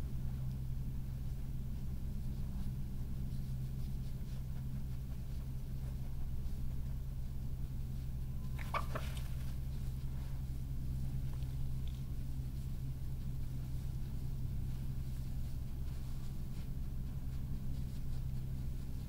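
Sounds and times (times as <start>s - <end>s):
steady low hum: 0.0s - 19.0s
badger squeaky call: 8.5s - 9.2s.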